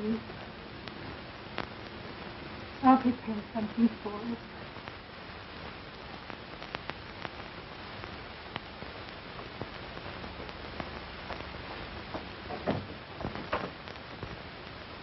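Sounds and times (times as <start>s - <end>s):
film soundtrack surface hiss: 0.0s - 15.0s
clicks and pops: 0.4s - 2.0s, 5.6s - 14.4s.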